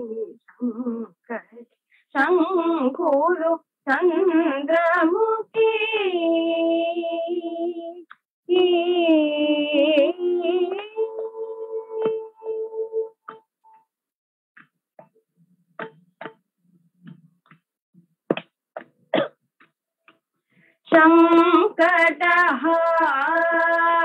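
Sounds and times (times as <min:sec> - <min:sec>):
women singing: 0:00.0 - 0:01.4, 0:02.2 - 0:13.3, 0:20.9 - 0:24.0.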